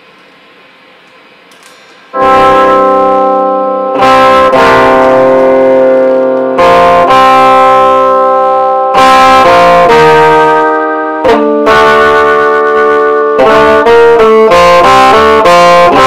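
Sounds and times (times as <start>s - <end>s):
electric guitar sustained chords: 2.1s - 16.0s.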